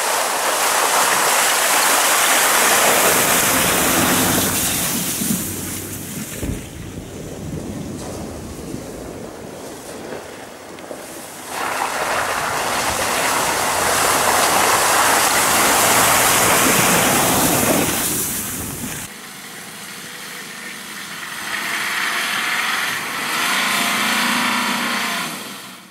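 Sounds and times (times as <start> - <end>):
mud and water splashing: 0.0 - 20.0
car engine pulling uphill: 0.0 - 25.9
pickup engine driving: 2.2 - 25.9.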